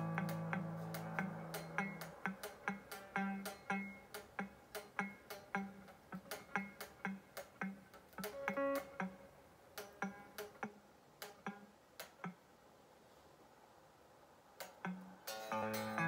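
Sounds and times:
electric guitar strumming: 0.0 - 11.7, 14.8 - 16.0.

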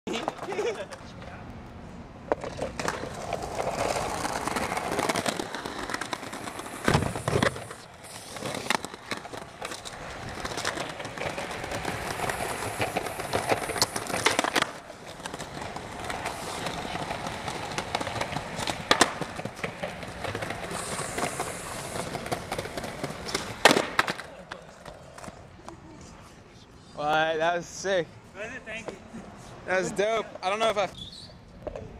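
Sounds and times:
skateboard popping and landing: 0.1 - 1.3, 2.2 - 25.5
skateboard wheels rolling on concrete: 0.1 - 31.9.

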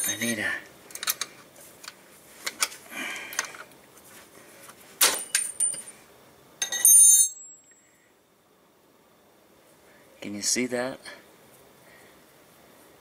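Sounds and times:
jingling metallic clatter: 0.0 - 0.4, 5.0 - 6.0
metal tools clicking and knocking: 0.0 - 1.3, 5.0 - 5.9, 6.6 - 7.4.

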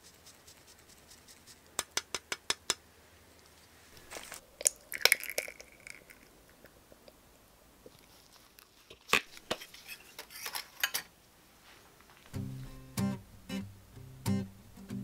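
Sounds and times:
cheese grating: 0.0 - 1.7.

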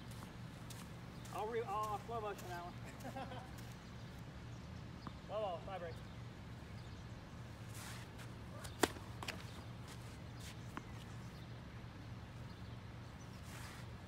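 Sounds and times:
tennis ball pop: 8.6 - 9.4.

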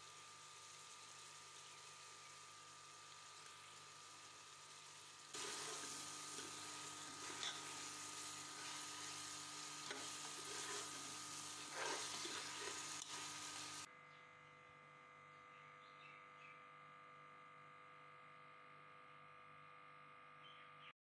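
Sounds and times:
meat sizzling in oil: 0.0 - 13.9
metal ladle scraping pot: 5.4 - 7.9, 9.8 - 13.3.

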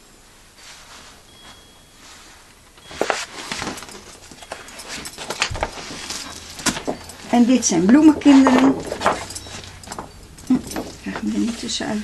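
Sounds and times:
room hiss: 0.0 - 8.0
boards and paper rustling: 2.8 - 12.0.

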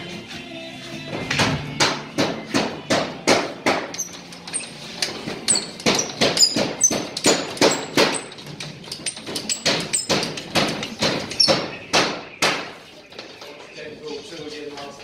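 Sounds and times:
hammer driving nails: 1.3 - 12.8.

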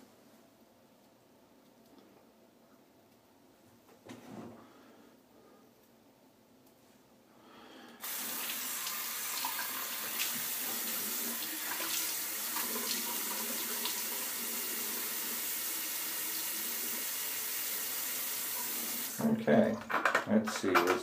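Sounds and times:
tap water pouring into sink: 8.0 - 19.2.

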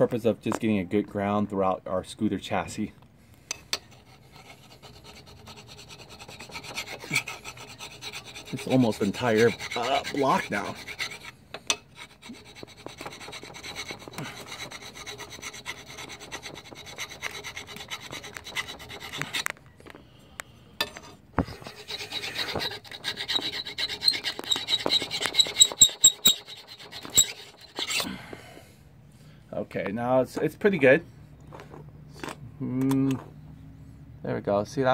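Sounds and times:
metal file scraping metal: 3.5 - 19.5, 20.8 - 28.2.

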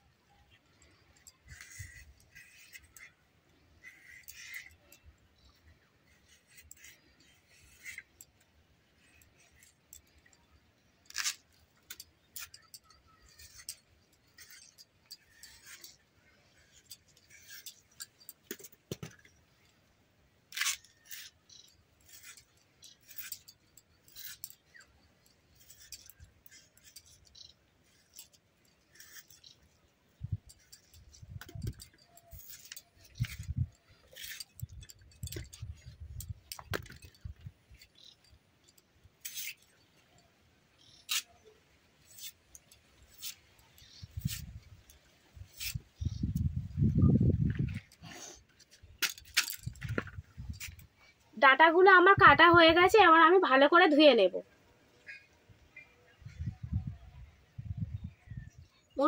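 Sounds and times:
blade cutting vegetable stalks: 11.1 - 19.2, 20.5 - 38.2, 41.0 - 46.4.

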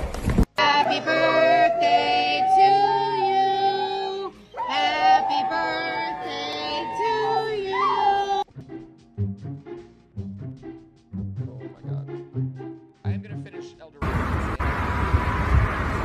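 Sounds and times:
singing: 0.6 - 8.4
dog howling: 0.8 - 8.4.

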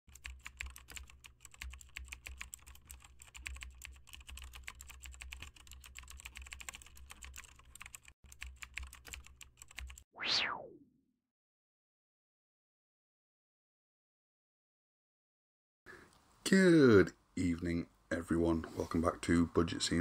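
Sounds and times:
keyboard typing clicks: 0.1 - 10.0
whoosh sweeping down in pitch: 10.2 - 11.0.

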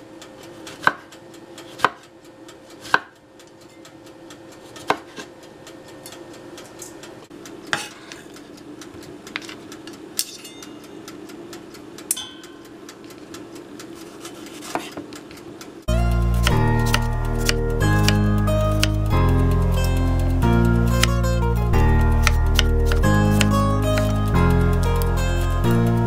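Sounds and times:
low hum: 15.8 - 26.0.

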